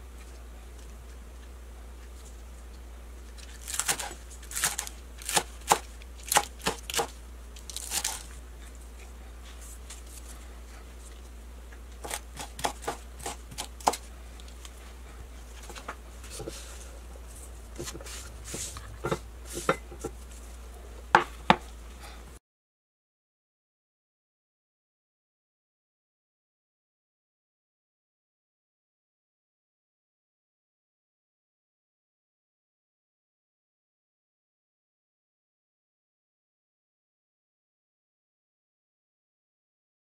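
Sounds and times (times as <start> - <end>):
steady low hum: 0.0 - 22.4
knife chopping on wooden board: 3.7 - 7.1, 12.0 - 14.0, 17.8 - 20.1.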